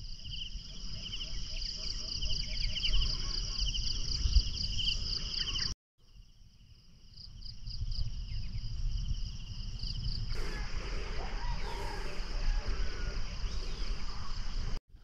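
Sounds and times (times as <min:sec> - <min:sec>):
insects chirping: 0:00.0 - 0:14.8.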